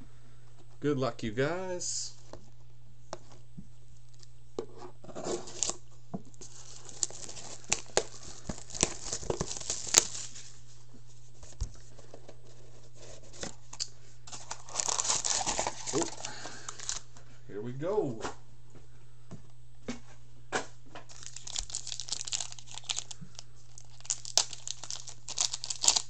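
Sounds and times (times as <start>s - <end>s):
faint low hum: 0.0s - 26.0s
plastic wrap tearing and crinkling: 5.2s - 5.8s, 6.4s - 10.6s, 13.4s - 17.1s, 21.1s - 26.0s.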